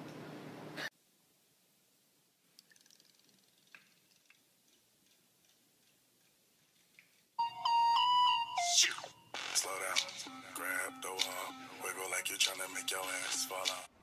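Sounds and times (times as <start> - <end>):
faint ticks and clicks: 2.5 - 7.4.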